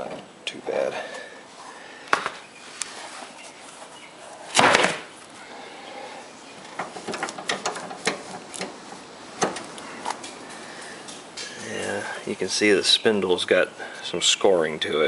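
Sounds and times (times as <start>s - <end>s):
small clicks and knocks: 6.6s - 10.4s.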